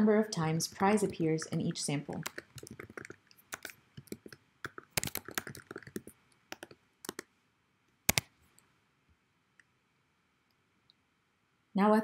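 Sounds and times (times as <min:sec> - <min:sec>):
keyboard key clicks: 0:00.7 - 0:07.2, 0:08.1 - 0:08.3.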